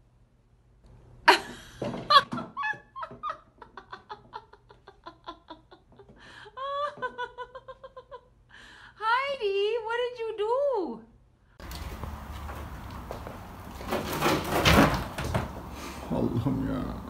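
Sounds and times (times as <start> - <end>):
person laughing: 1.3 - 8.3.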